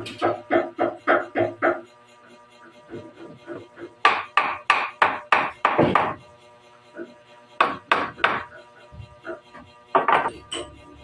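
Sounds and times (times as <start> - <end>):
hammer striking wood: 4.0 - 6.2, 7.6 - 8.5.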